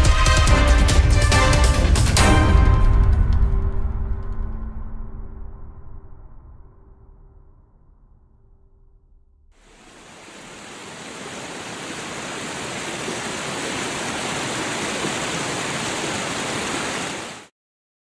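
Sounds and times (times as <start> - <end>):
river water rushing over rocks: 9.6 - 17.5.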